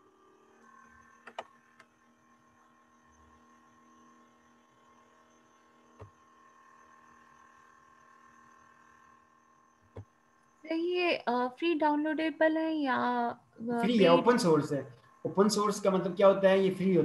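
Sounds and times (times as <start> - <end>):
faint electrical hum: 0.0 - 17.0
computer mouse clicks: 1.2 - 1.9, 6.0 - 6.2, 9.8 - 10.1.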